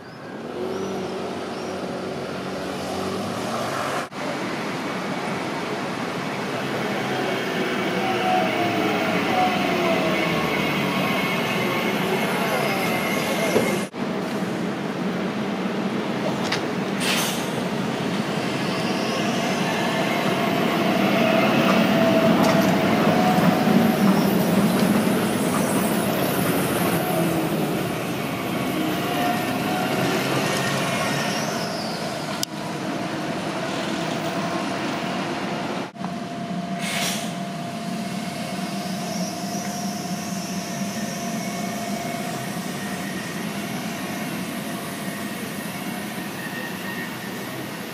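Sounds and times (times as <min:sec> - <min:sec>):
tram rolling noise: 0:00.0 - 0:47.9
tram whine: 0:00.0 - 0:47.9
short hiss: 0:36.8 - 0:37.4.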